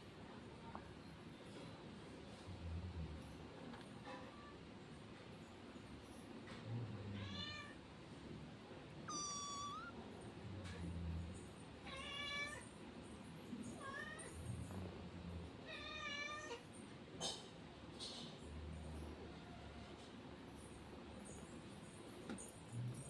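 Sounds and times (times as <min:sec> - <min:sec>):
kitten mewing: 0:09.1 - 0:10.0.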